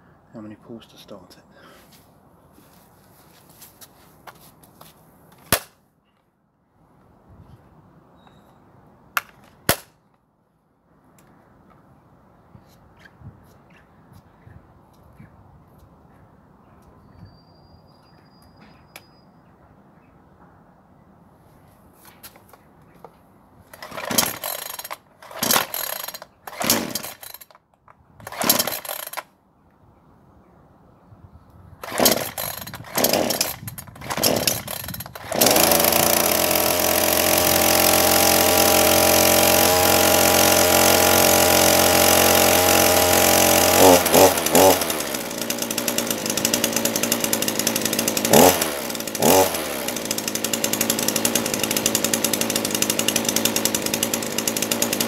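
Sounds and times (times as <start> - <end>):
chainsaw engine running: 23.7 - 27.6, 28.2 - 29.2, 31.8 - 55.0
chainsaw recoil starter pulled: 23.7 - 29.3, 31.8 - 55.0.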